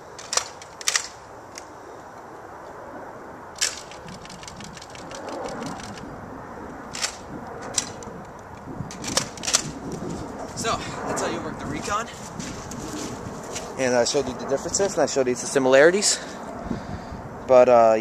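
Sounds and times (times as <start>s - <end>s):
sharp plastic clacks: 0.2s - 1.7s, 3.6s - 6.1s, 6.9s - 10.0s.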